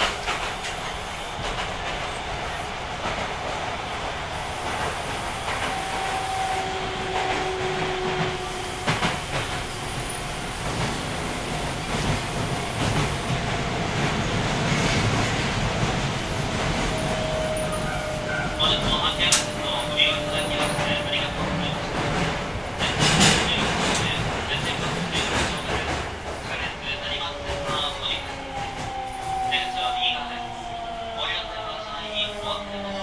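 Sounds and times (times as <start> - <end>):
steady train rumble: 0.0 - 33.0
train wheels clacking over joints: 4.6 - 26.7.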